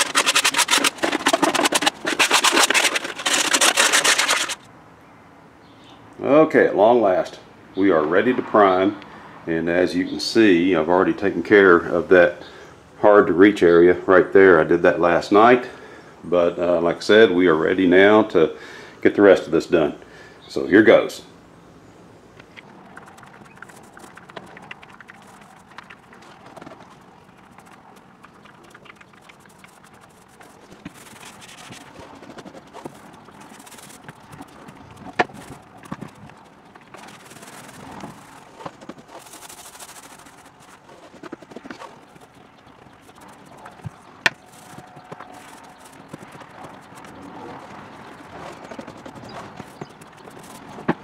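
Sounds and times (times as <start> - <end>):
paint roller scrubbing: 0.0 - 4.7, 22.8 - 51.0.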